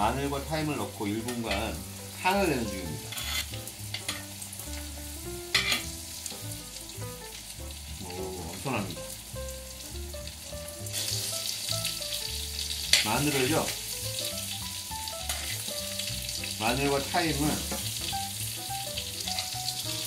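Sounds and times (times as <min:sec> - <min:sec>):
butter sizzling in a pan: 0:00.0 - 0:20.0
spoon clinking on pan: 0:05.5 - 0:05.8.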